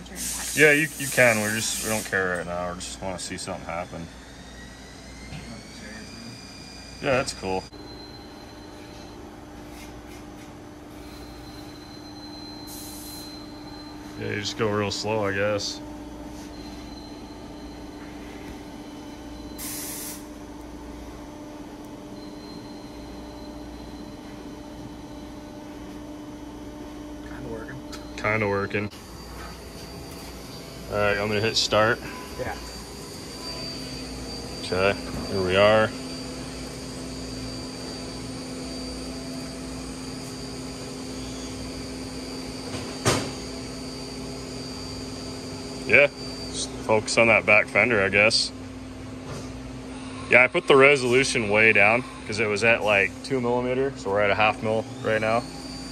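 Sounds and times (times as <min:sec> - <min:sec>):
steady mechanical hum: 0:00.0 - 0:55.9
hissing air burst: 0:00.1 - 0:02.2, 0:19.6 - 0:20.3.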